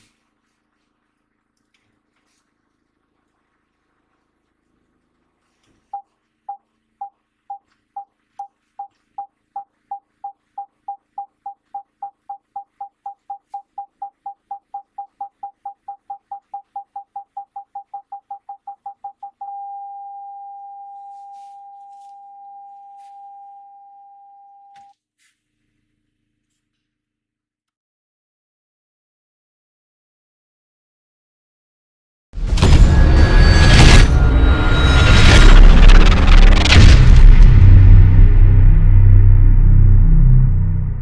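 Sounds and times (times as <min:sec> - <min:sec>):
parking sensor beeping: 0:05.9 - 0:24.7.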